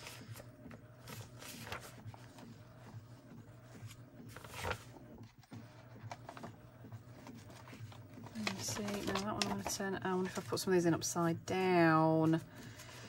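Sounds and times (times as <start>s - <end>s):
paper pages rustling and scraping: 0.0s - 10.8s, 12.3s - 13.0s.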